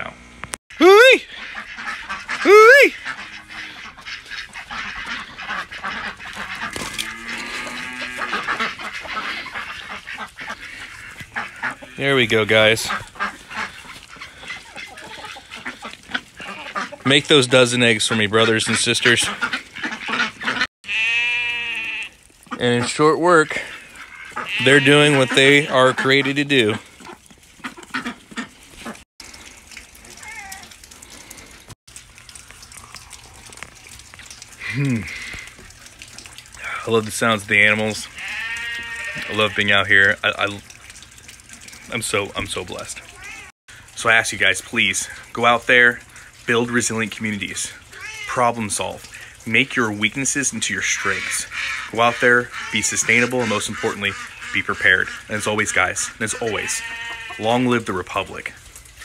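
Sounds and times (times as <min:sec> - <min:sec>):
outdoor background noise: 0:00.0 - 0:59.0
ducks quacking: 0:00.8 - 0:29.0, 0:41.8 - 0:58.4.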